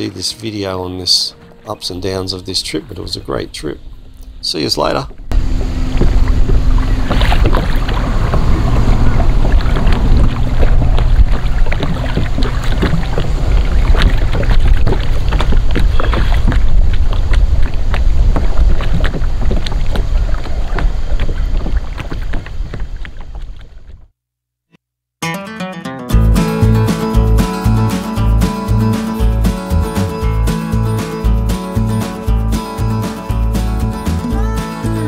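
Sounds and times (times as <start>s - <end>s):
water lapping against hull: 1.1s - 24.1s
wind buffeting microphone: 5.1s - 24.0s.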